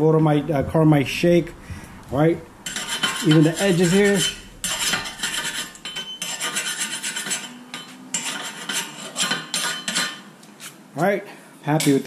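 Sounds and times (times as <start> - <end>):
metal tool scraping steel hub: 2.6 - 10.3.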